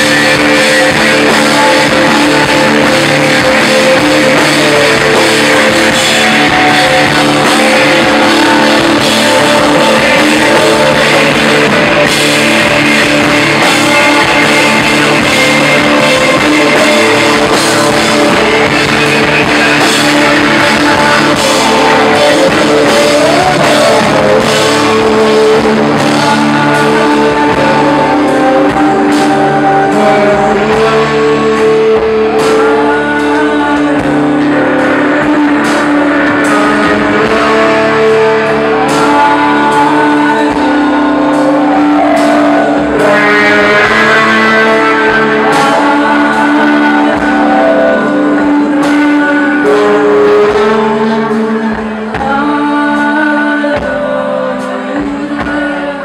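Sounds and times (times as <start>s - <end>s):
distorted electric guitar: 0.0s - 56.0s
person singing: 0.0s - 56.0s
pounding drum kit: 0.0s - 56.0s.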